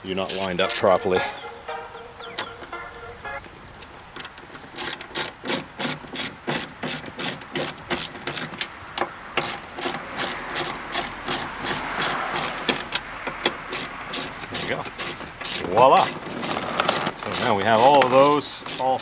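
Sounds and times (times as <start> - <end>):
socket ratchet clicking: 4.2 - 19.0.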